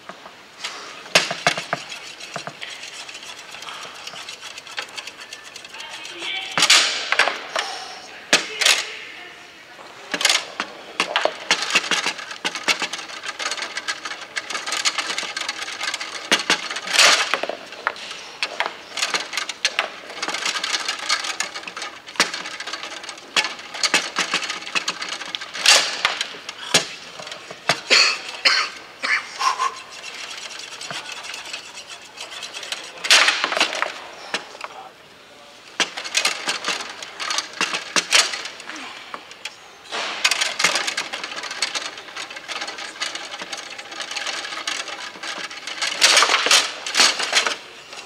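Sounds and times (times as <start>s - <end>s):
foosball clacks and knocks: 1.1s - 7.5s, 10.1s - 28.8s, 29.6s - 34.8s, 35.7s - 48.0s.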